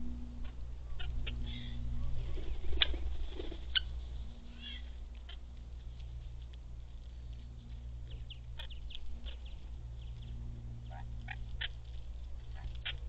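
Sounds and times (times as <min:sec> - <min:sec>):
steady low hum: 0:00.0 - 0:13.0
parrots chirping: 0:08.1 - 0:11.8.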